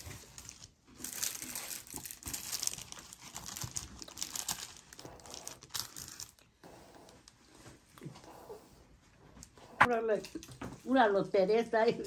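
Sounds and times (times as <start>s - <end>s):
packaging crinkling: 0.0s - 6.5s.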